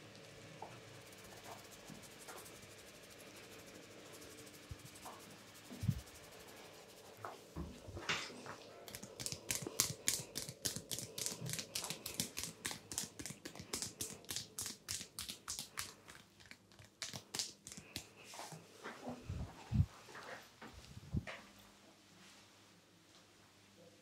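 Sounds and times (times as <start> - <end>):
fingers scratching through hair: 0.6 - 7.4, 8.0 - 18.4.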